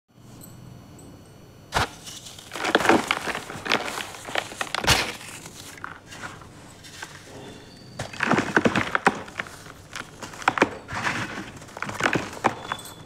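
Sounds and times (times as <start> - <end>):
cement cast cracking: 1.7 - 6.5, 8.0 - 13.0
gritty crunching of crumbling cement: 1.8 - 7.3, 8.0 - 13.0.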